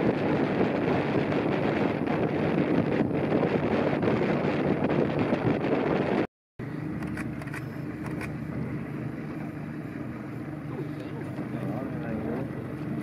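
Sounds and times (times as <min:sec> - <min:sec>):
wind noise on microphone: 0:00.0 - 0:08.8
boat engine running: 0:00.0 - 0:13.0.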